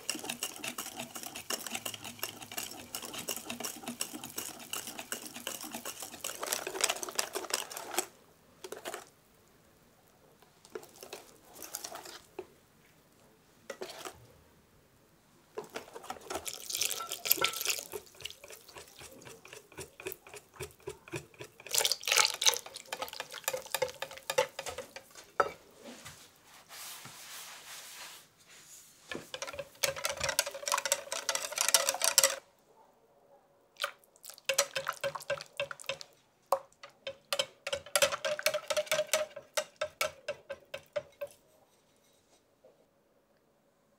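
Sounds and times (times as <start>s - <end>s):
wire whisk beating batter: 0.0s - 8.1s, 15.6s - 25.5s, 29.1s - 32.4s, 34.2s - 41.4s
batter sloshing: 0.0s - 9.1s, 10.6s - 12.4s, 15.6s - 26.1s, 29.1s - 32.4s, 33.8s - 36.2s.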